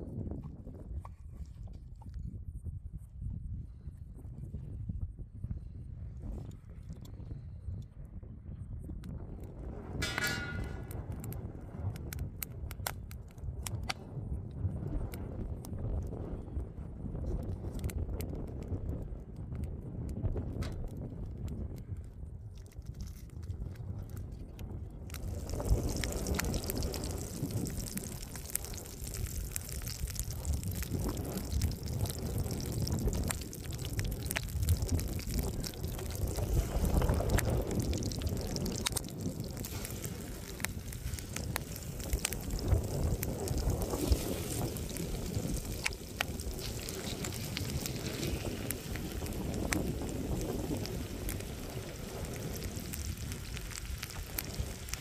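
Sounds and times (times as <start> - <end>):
wind rumble on microphone: 0.0 - 55.0
small pops and crackles: 9.0 - 55.0
butter sizzling in a pan: 25.1 - 55.0.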